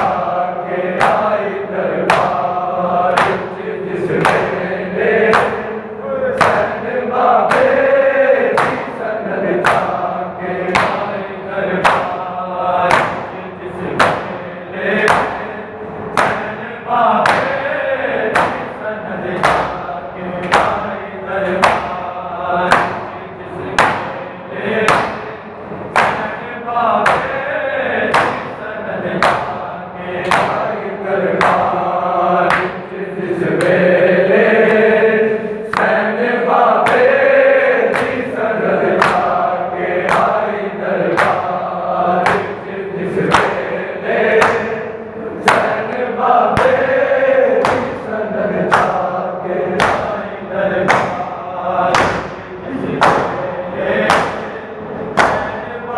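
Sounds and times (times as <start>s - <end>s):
men chanting in unison: 0.0s - 55.9s
chest-beating slaps: 0.9s - 7.9s, 8.5s - 9.0s, 9.6s - 10.0s, 10.6s - 12.2s, 12.8s - 17.7s, 18.3s - 18.8s, 19.4s - 27.4s, 28.1s - 29.6s, 30.2s - 33.0s, 33.6s - 33.8s, 35.7s - 39.4s, 40.0s - 40.5s, 41.1s - 41.6s, 42.2s - 44.8s, 45.4s - 49.1s, 49.7s - 51.3s, 51.9s - 55.7s.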